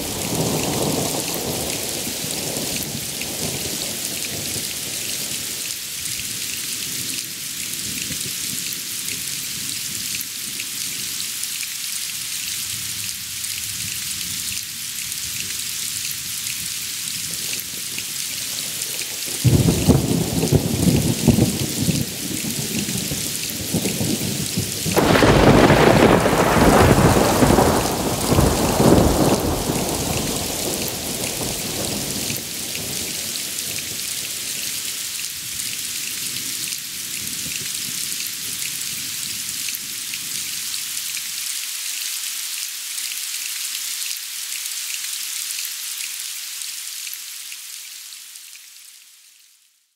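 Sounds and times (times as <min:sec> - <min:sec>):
rain hissing: 0:00.0 - 0:07.7, 0:09.3 - 0:49.4
thunder rumbling: 0:19.4 - 0:33.5.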